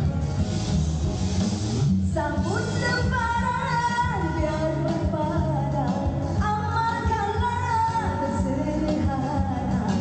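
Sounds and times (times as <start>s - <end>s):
backing track with steady beat: 0.0s - 10.0s
woman singing pop song: 2.1s - 10.0s.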